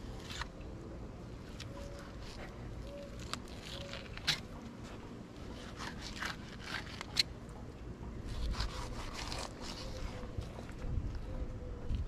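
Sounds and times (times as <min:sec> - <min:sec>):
knife scraping raw fish: 0:01.5 - 0:07.4, 0:08.3 - 0:10.6.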